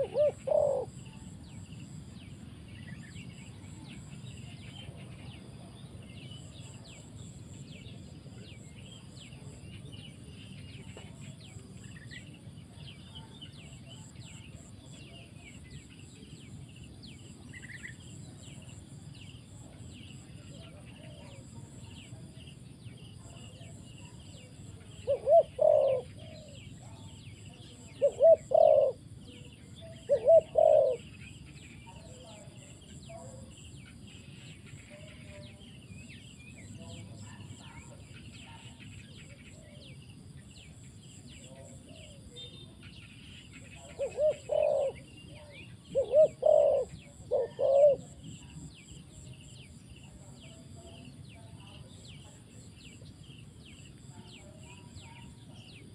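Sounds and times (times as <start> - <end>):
dove cooing: 0.0 - 1.4, 23.2 - 27.1, 27.7 - 31.2, 43.8 - 48.7.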